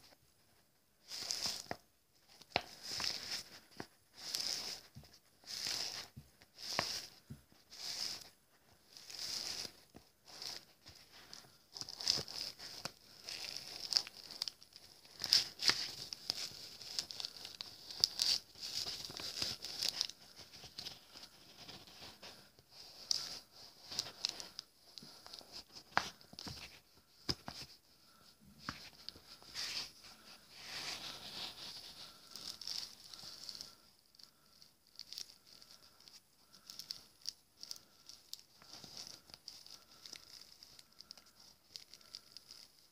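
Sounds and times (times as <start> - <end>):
plastic bag crinkling: 30.6 - 42.9.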